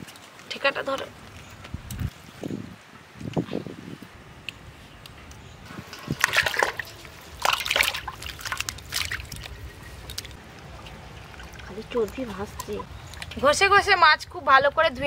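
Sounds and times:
water splashing in steel bowl: 0:05.8 - 0:12.9.

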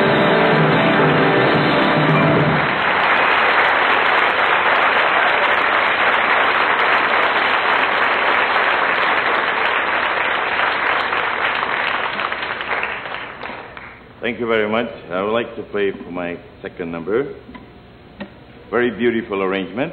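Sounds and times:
piano notes: 0:00.0 - 0:02.8
audience applauding: 0:00.0 - 0:14.0.

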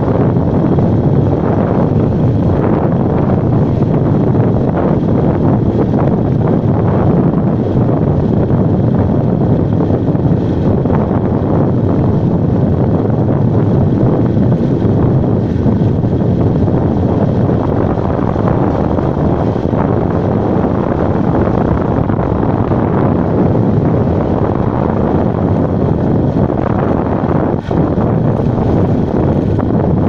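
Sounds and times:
road noise: 0:00.0 - 0:30.0
wind buffeting microphone: 0:00.0 - 0:30.0.

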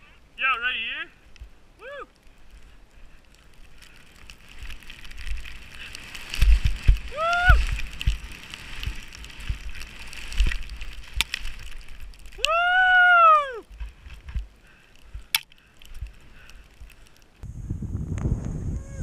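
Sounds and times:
skier whooping: 0:01.8 - 0:02.2, 0:07.0 - 0:08.0, 0:12.4 - 0:13.7, 0:18.6 - 0:19.0
skis hissing through snow: 0:03.1 - 0:12.8.

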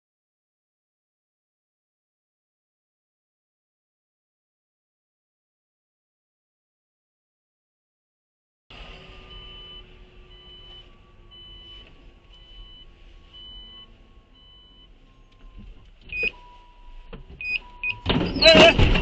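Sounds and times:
car warning chime beeps: 0:08.8 - 0:19.0.

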